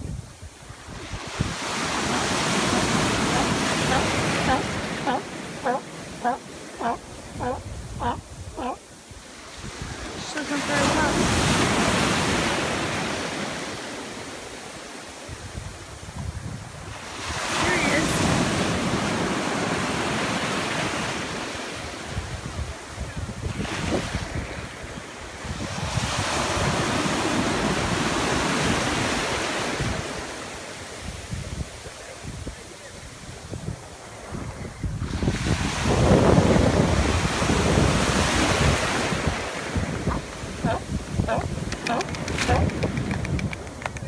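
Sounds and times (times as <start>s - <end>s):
wind buffeting microphone: 0.0s - 13.2s, 22.1s - 30.2s, 33.2s - 44.0s
ocean surf breaking: 0.6s - 14.9s, 17.0s - 21.9s.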